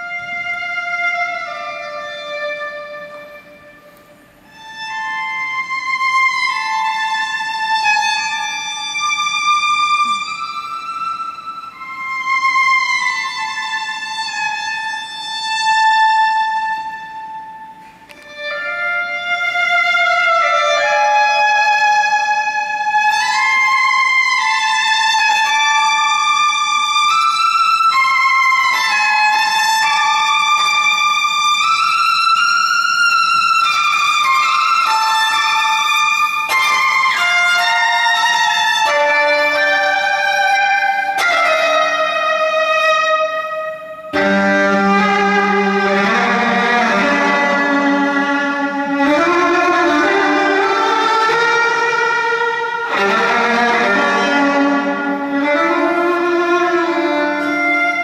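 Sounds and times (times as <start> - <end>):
solo violin: 0.0 - 58.0.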